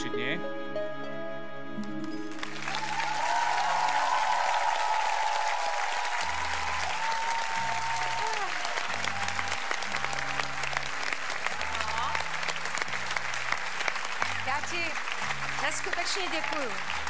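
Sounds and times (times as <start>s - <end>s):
soft background music: 0.0s - 3.0s
audience clapping: 1.8s - 17.0s.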